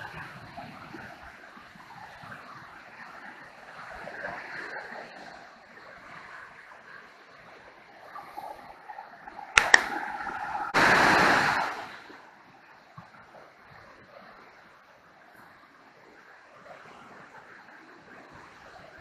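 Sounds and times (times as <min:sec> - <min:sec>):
sharp clicks: 0:09.6 - 0:10.0
river rapids rushing: 0:10.7 - 0:12.3
burst of rushing noise: 0:10.8 - 0:12.0.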